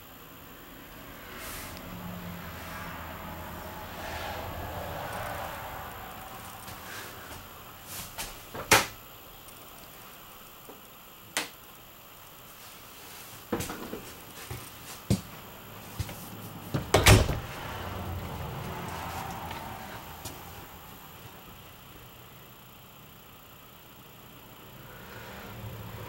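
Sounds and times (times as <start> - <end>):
doors knocking and clacking: 16.8 - 17.5.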